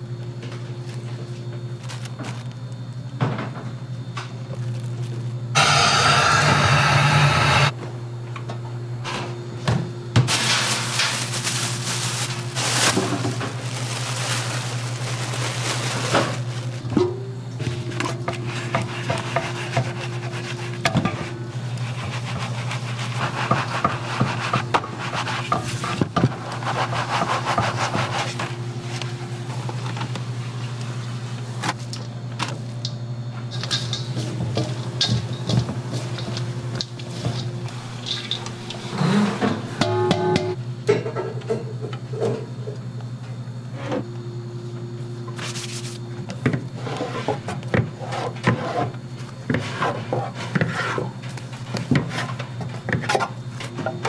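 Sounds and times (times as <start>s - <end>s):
steady low hum: 0.0s - 54.0s
loud hiss: 5.6s - 7.7s
flour rubbed through mesh sieve: 18.5s - 20.8s, 21.7s - 28.6s.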